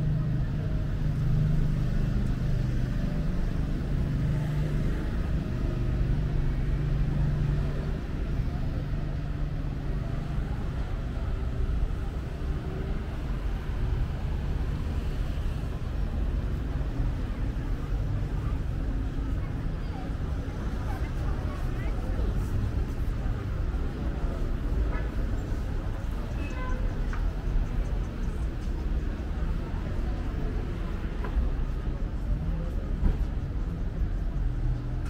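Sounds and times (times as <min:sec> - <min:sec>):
steady engine hum: 0:00.0 - 0:35.0.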